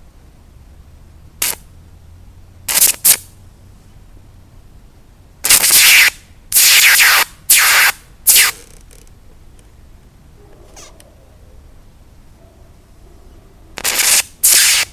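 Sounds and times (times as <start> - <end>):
electric arc bursts: 1.4 - 1.7, 2.7 - 3.3, 5.4 - 8.7, 13.8 - 14.9.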